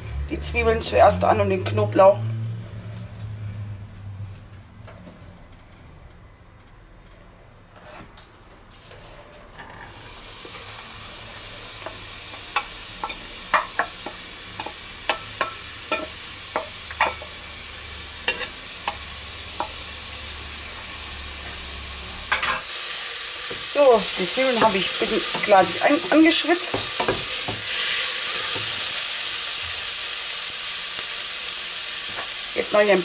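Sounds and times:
onions sizzling in hot oil: 10.0s - 33.0s.

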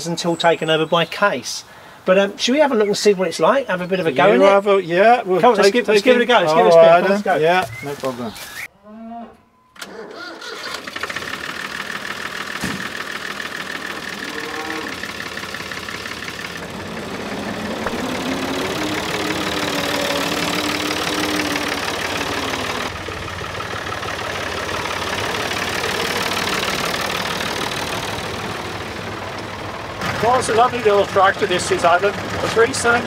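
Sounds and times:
tractor diesel engine running: 9.8s - 33.0s.

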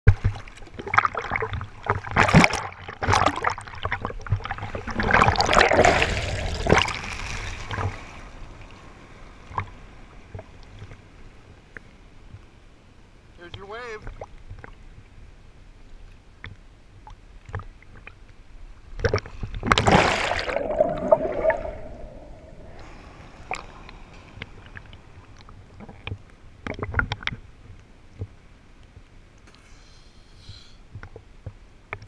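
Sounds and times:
seawater sloshing and splashing: 0.1s - 11.1s, 19.0s - 27.4s
underwater bubbling: 0.1s - 11.1s, 16.3s - 27.5s
wave breaking with rush of water: 4.6s - 9.7s, 19.6s - 25.3s.

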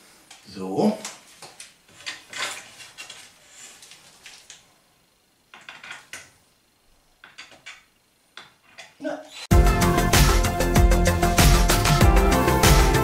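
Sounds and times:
wooden batten clicking and scraping: 1.5s - 4.6s, 7.2s - 9.0s.

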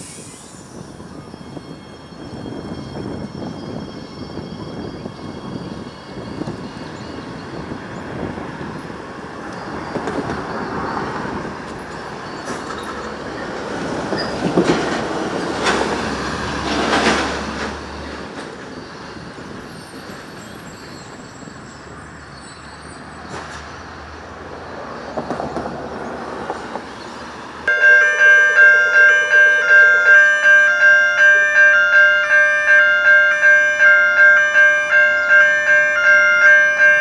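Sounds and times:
electric train pulling away: 0.0s - 31.4s
train wheels clicking and clacking: 8.8s - 21.2s, 23.1s - 23.8s, 25.1s - 26.9s.

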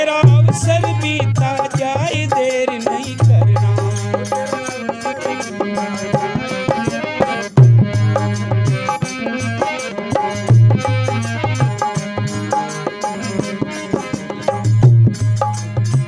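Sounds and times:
wavering melody line: 0.0s - 15.8s
tabla and drum rhythm: 0.0s - 16.0s
heavy low notes: 0.1s - 6.5s, 7.6s - 12.6s.

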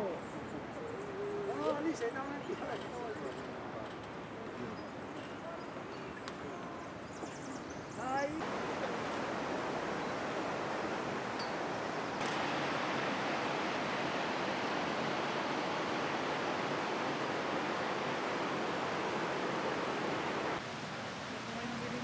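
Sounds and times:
rushing water: 7.8s - 22.0s.

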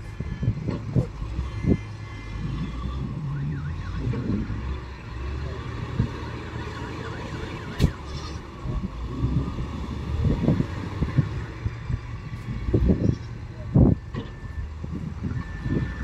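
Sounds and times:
diesel engine running: 0.0s - 16.0s
faint warbling alarm tone: 1.3s - 8.4s.

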